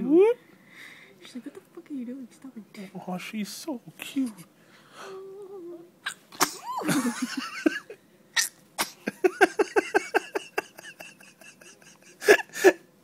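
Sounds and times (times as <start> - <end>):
baby sneezing: 6.0 - 6.8, 8.4 - 9.0.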